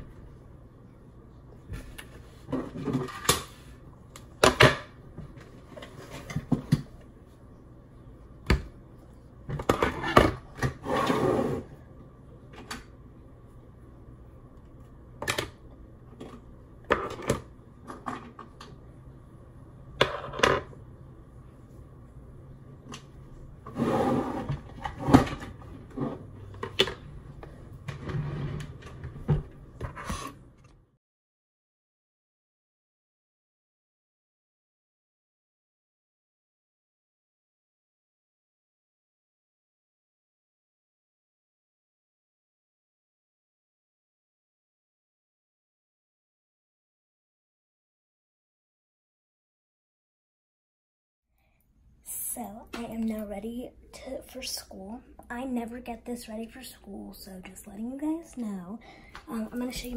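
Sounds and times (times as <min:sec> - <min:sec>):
objects scraping and rustling on desk: 0:01.7 - 0:03.8, 0:05.4 - 0:06.7, 0:09.6 - 0:11.7, 0:23.6 - 0:30.7.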